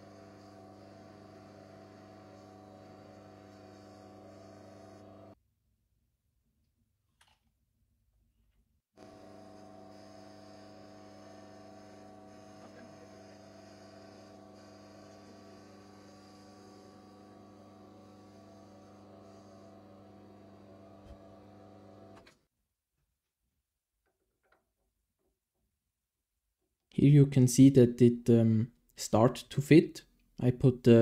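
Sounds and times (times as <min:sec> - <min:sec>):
lathe motor and gear hum: 0:00.0 - 0:05.4, 0:09.0 - 0:22.2.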